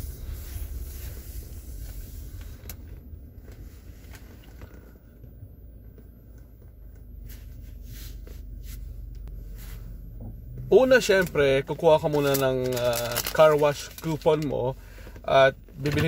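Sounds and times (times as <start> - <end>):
car cabin rumble: 0.0 - 16.0.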